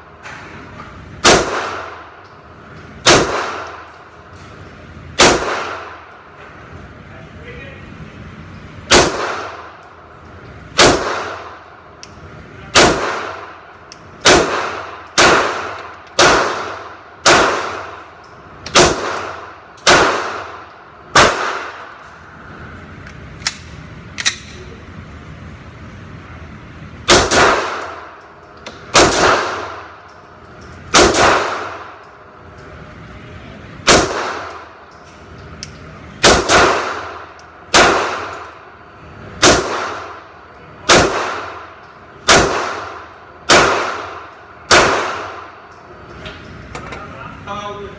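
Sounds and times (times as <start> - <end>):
pistol shots echoing indoors: 1.1 - 4.3, 5.1 - 6.3, 8.9 - 22.1, 27.0 - 32.6, 33.8 - 34.9, 35.7 - 45.8.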